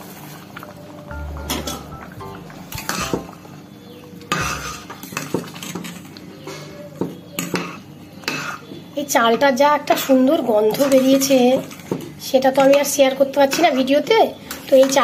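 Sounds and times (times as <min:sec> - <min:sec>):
water boiling: 0:00.0 - 0:06.4
metal ladle scraping a pot: 0:04.4 - 0:06.0.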